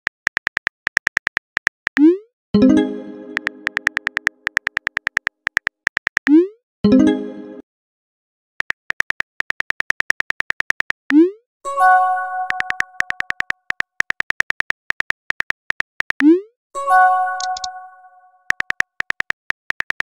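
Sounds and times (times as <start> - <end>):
phone keyboard clicks: 0.0 - 2.1, 3.4 - 6.3, 8.6 - 11.1, 12.5 - 16.3, 17.4 - 17.7, 18.5 - 20.0.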